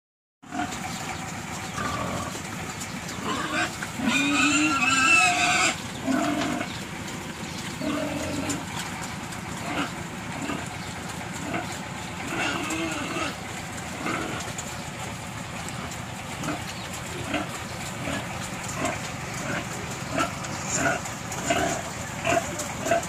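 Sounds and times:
pigs grunting: 0.4s - 23.0s
pig squealing: 1.6s - 2.5s, 3.1s - 6.8s, 7.8s - 8.8s, 11.4s - 14.6s, 16.4s - 23.0s.

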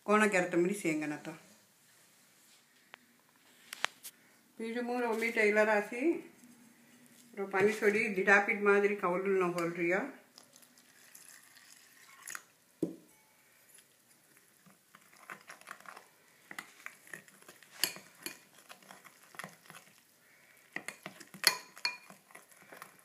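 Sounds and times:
spoon stirring batter in glass bowl: 9.5s - 23.0s
spoon clinking against glass: 20.8s - 22.2s.

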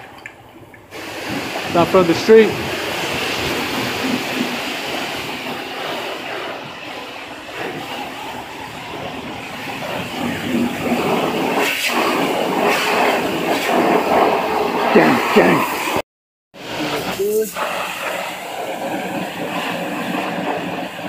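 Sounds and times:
pressure washer spraying water: 0.9s - 16.0s, 16.6s - 21.0s.

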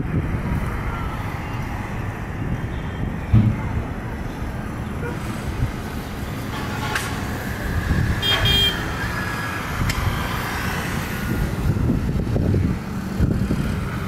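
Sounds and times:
distant jet engines roaring: 0.0s - 14.0s
vehicle horn honking: 8.2s - 8.9s.

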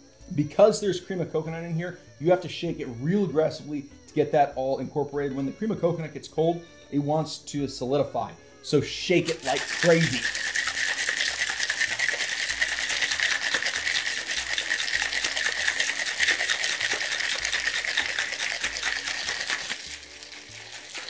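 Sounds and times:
ice rattling in cocktail shaker: 9.1s - 21.0s.

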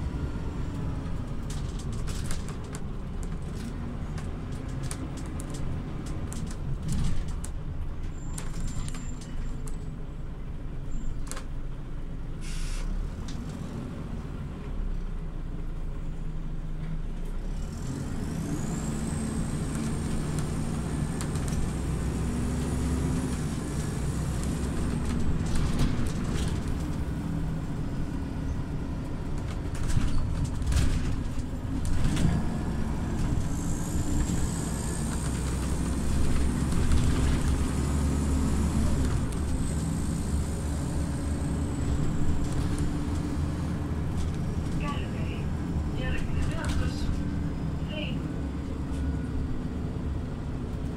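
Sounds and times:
bus diesel engine: 0.0s - 50.9s
short air hiss: 12.4s - 12.9s
knocks and rattles: 29.3s - 32.5s.

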